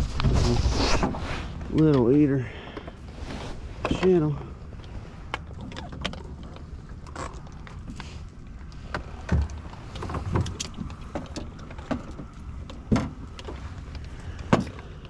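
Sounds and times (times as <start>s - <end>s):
low steady rumble: 0.0s - 15.0s
knocks and clunks on boat: 8.8s - 15.0s.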